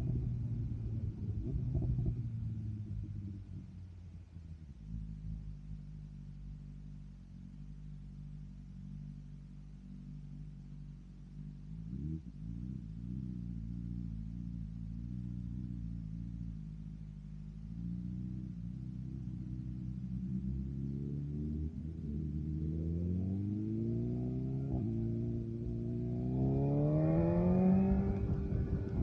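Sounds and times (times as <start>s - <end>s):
motorcycle engine revving: 11.6s - 29.0s.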